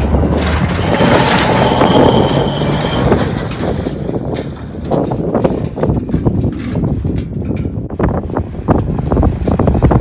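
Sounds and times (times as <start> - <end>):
truck engine revving hard: 0.0 - 4.3
tyres spinning spraying gravel: 0.0 - 6.7.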